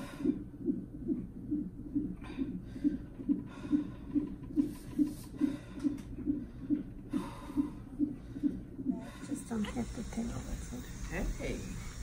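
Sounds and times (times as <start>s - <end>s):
woman breathing heavily: 0.0s - 0.8s, 2.0s - 10.1s
fetal heartbeat doppler: 0.0s - 12.0s.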